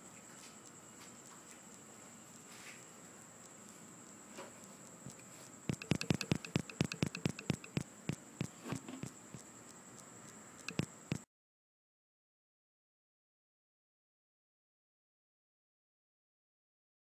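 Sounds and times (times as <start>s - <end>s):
sharp clicks: 5.7s - 11.2s.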